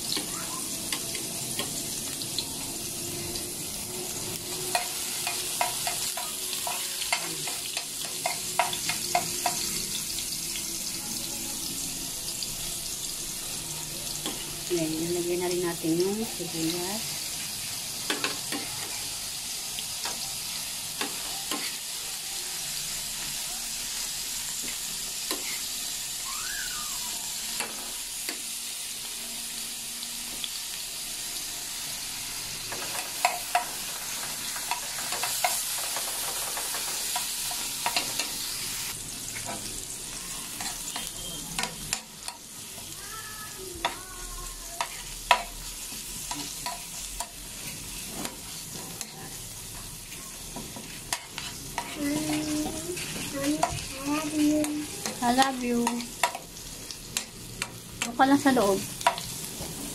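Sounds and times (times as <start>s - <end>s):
onions sizzling in oil: 0.0s - 59.9s
spatula tapping pan: 4.7s - 9.7s, 18.1s - 18.8s, 44.8s - 45.6s, 54.6s - 56.5s
spatula scraping pan: 50.5s - 56.4s.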